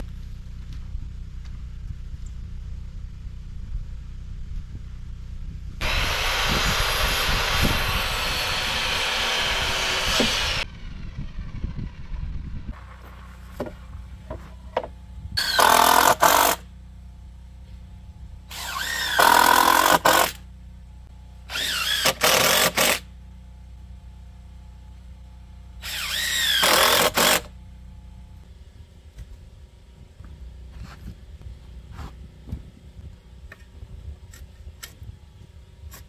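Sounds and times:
cordless drill driving screws: 5.8s - 10.6s, 15.4s - 16.6s, 18.5s - 20.4s, 21.5s - 23.0s, 25.8s - 27.5s
power tool running: 5.8s - 12.7s, 15.4s - 16.7s, 18.5s - 20.4s, 21.4s - 23.1s, 25.8s - 27.6s.

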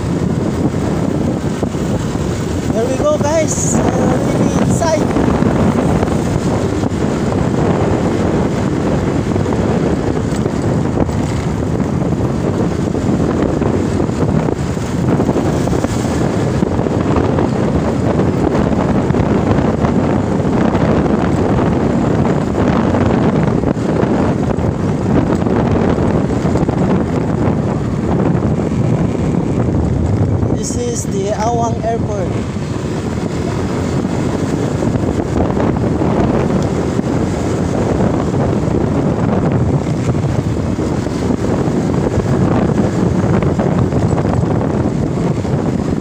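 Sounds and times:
motorcycle engine: 0.0s - 46.0s
road noise: 0.0s - 46.0s
wind roar on microphone: 0.0s - 46.0s.

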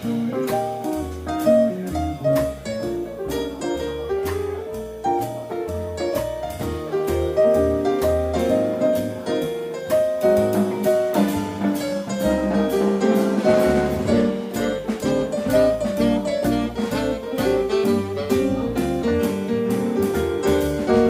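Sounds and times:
double bass: 0.0s - 21.0s
piano: 0.0s - 21.0s.

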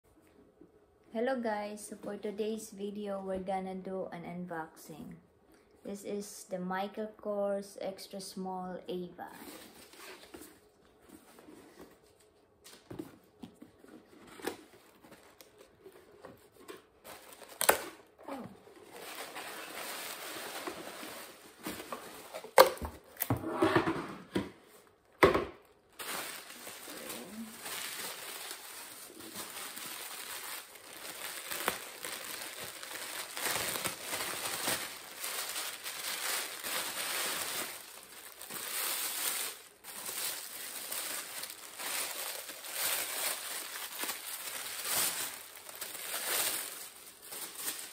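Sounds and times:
paper and plastic crinkling: 9.3s - 23.3s, 25.9s - 47.9s.

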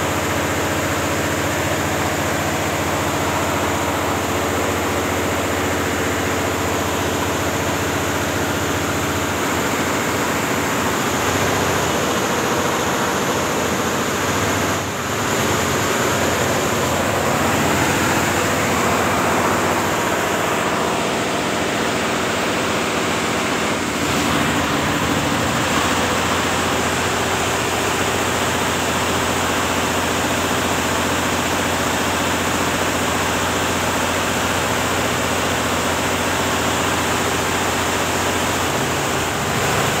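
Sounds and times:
embroidery machine clatter and hum: 0.0s - 40.0s.

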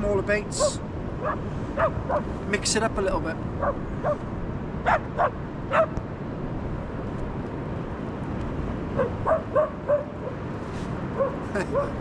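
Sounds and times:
low rush of wind: 0.0s - 12.0s
dogs barking in high yaps: 0.6s - 2.3s, 3.6s - 4.2s, 4.8s - 6.0s, 9.0s - 10.4s, 11.2s - 12.0s.

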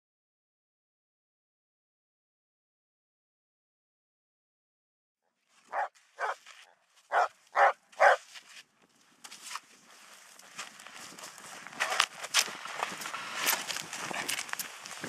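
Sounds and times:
dog barking: 5.7s - 6.4s, 7.1s - 8.2s
snow shovel scraping snow: 9.2s - 15.0s.

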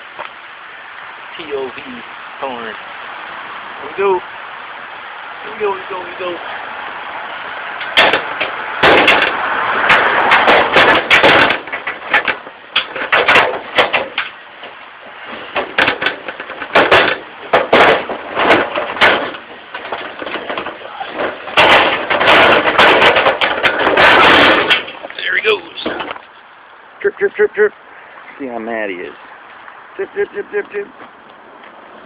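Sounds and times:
wire cage rattling and clanking: 7.7s - 26.2s.

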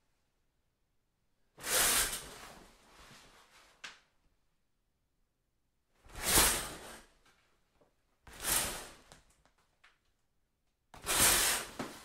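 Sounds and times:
curtain fabric swishing: 6.1s - 7.1s, 8.3s - 9.2s, 11.0s - 12.0s.

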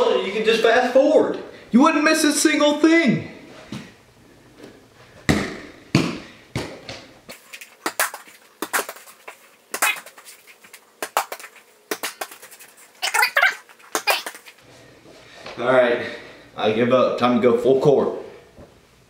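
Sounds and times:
ball thumping against hoop: 5.3s - 7.1s
ball bouncing on floor: 5.3s - 9.0s.

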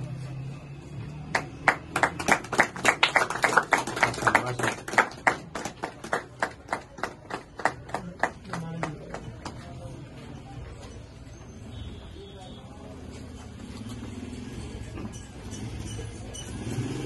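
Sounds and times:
people clapping: 1.0s - 10.2s.

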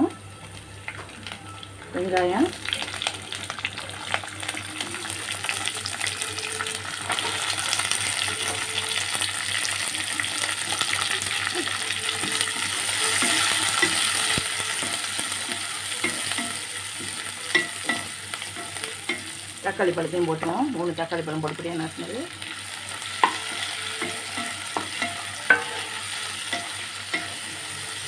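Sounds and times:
onions sizzling in oil: 0.0s - 28.0s
spatula scraping a pan: 23.2s - 28.0s.

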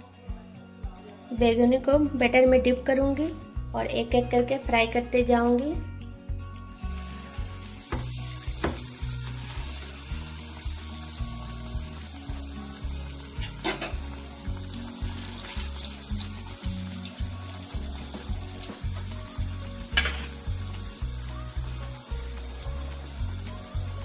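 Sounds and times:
background music beat: 0.0s - 24.0s
eggplant frying in hot oil: 6.7s - 24.0s
oil crackling: 6.8s - 24.0s.

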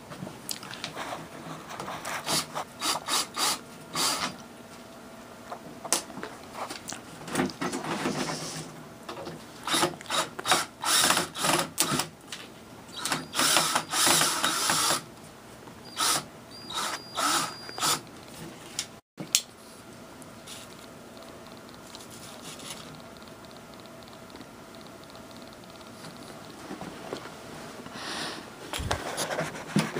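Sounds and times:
cordless drill driving screw: 9.7s - 12.0s, 13.0s - 15.0s, 15.9s - 18.1s.

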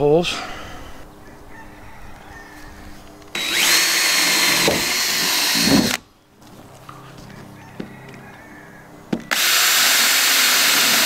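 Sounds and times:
cordless drill whining: 3.3s - 6.0s, 9.3s - 11.0s.

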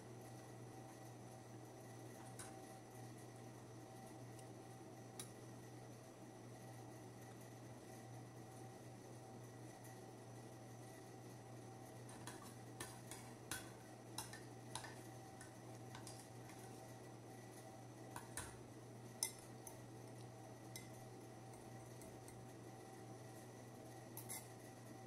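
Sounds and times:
low steady hum: 0.0s - 25.0s
spoon clinking on ceramic: 19.2s - 19.4s.

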